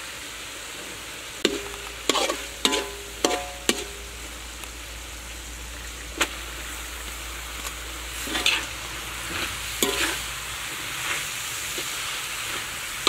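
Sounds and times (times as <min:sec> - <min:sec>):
meat sizzling in wok: 0:00.0 - 0:13.0
metal spatula clinking on wok: 0:01.5 - 0:04.2, 0:09.8 - 0:10.2.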